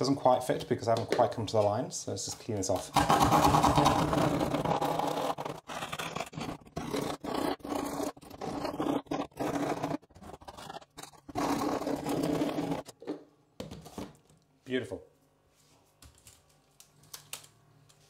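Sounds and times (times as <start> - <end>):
knife scraping wood: 3.0 - 12.9.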